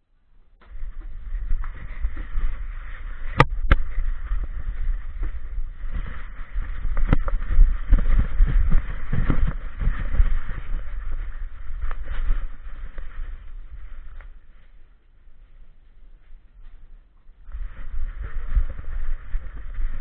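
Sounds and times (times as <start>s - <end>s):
camera handling rumble: 0.6s - 14.6s.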